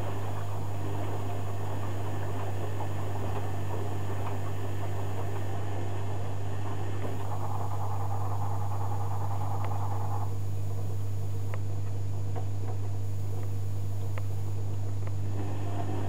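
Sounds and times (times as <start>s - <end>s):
washing machine tumbling laundry: 0.0s - 8.0s.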